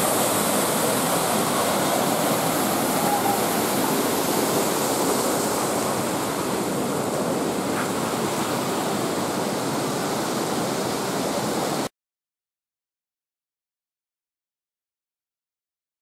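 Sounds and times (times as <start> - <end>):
rushing stream water: 0.0 - 11.9.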